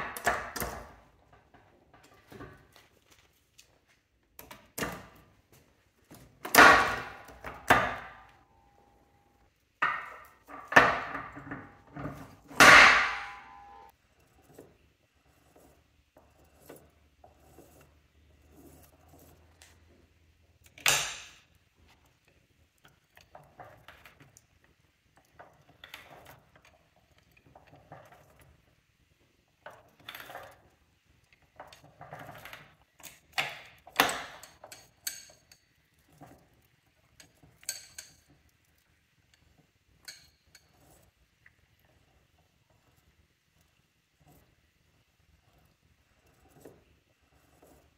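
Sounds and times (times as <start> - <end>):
heavy metal clunk: 9.8 - 13.9
sharp metal clanks: 12.5 - 13.9.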